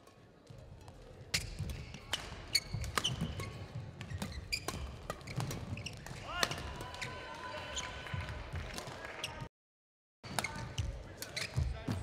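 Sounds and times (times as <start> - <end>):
shoes squeaking: 2.5 - 6.2, 10.4 - 11.9.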